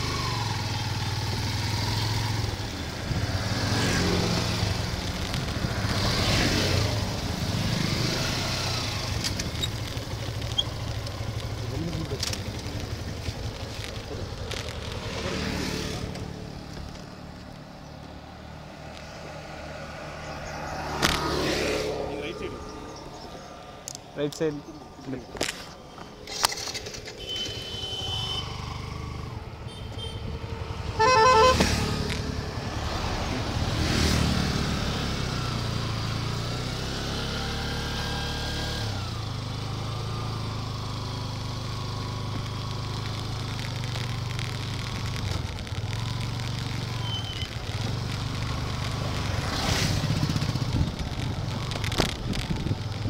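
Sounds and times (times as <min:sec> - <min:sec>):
motorcycle engine running: 0:00.0 - 0:18.2, 0:25.3 - 0:53.0
horn honking: 0:27.1 - 0:28.9, 0:29.6 - 0:32.0.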